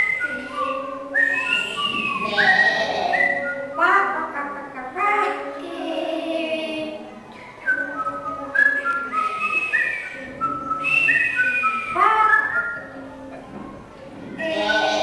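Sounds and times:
child whistling: 0.0s - 3.7s, 7.6s - 12.8s
child's voiced sounds: 14.4s - 15.0s.

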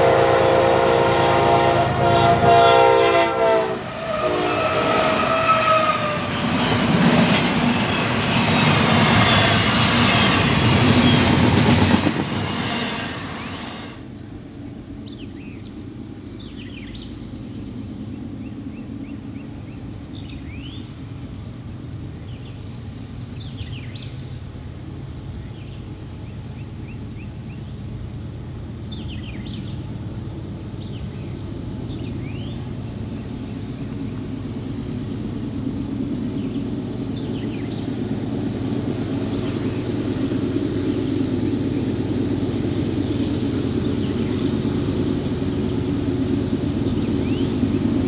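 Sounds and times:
diesel locomotive engines running: 0.0s - 48.0s
birds chirping: 5.6s - 12.0s, 45.4s - 47.7s.

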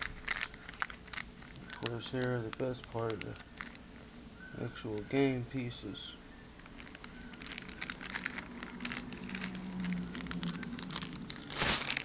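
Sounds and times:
game box clicks and rustling: 0.0s - 3.8s, 6.7s - 12.0s
packaging crinkling: 0.0s - 5.7s, 6.6s - 12.0s.

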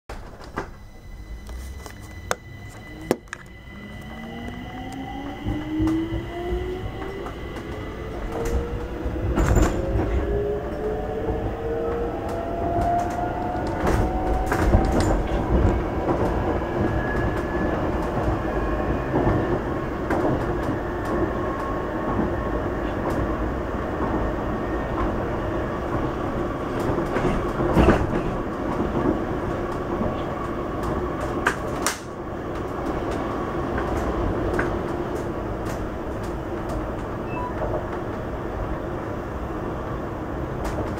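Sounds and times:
oncoming train passing: 0.1s - 40.9s
train rumble: 0.1s - 40.9s
traction motor whine: 0.6s - 9.0s.

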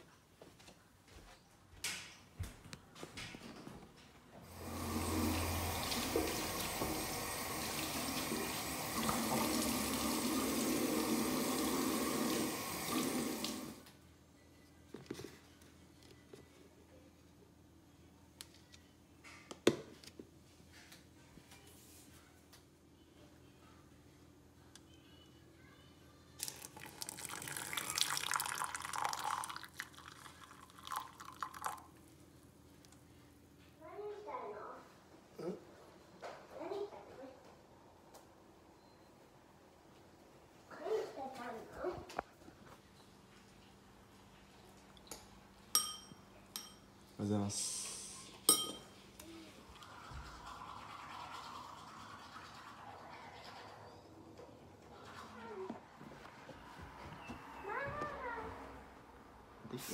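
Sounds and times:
hot water pouring into a mug: 4.5s - 13.8s, 26.4s - 31.9s, 49.6s - 53.9s
tap running into washbasin: 4.6s - 13.8s.

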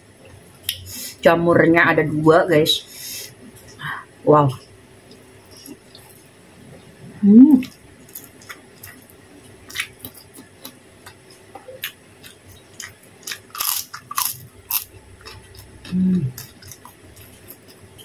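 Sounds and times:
person humming: 7.1s - 7.7s, 15.9s - 16.4s
person chewing: 7.6s - 18.0s.

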